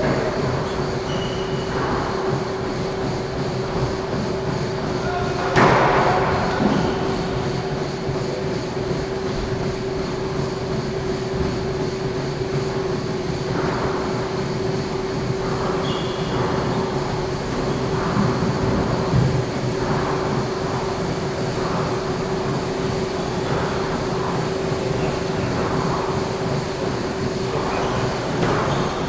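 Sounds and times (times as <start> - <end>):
steady hum: 0.0 - 29.0.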